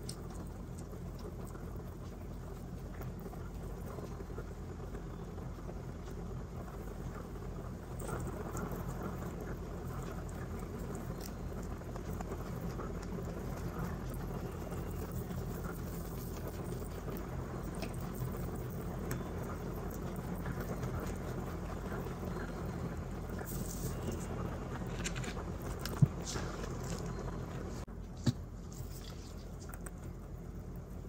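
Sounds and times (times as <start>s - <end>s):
rabbits chewing hay: 0.0s - 31.0s
dry hay rustling: 23.4s - 27.8s.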